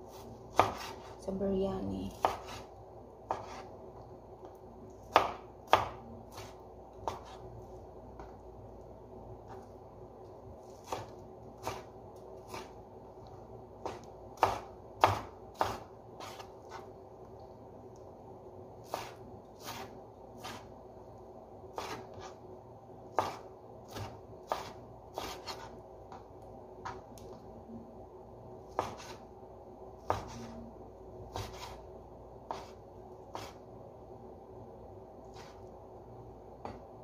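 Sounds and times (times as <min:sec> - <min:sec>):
faint steady hum: 0:00.0 - 0:37.0
knife chopping on cutting board: 0:00.1 - 0:01.2, 0:02.1 - 0:02.7, 0:03.3 - 0:03.7, 0:05.1 - 0:07.4, 0:10.7 - 0:12.7, 0:13.8 - 0:16.9, 0:18.8 - 0:20.7, 0:21.7 - 0:22.4, 0:23.1 - 0:26.2, 0:28.7 - 0:29.2, 0:30.0 - 0:30.6, 0:31.3 - 0:31.8, 0:32.5 - 0:33.6, 0:35.3 - 0:35.6.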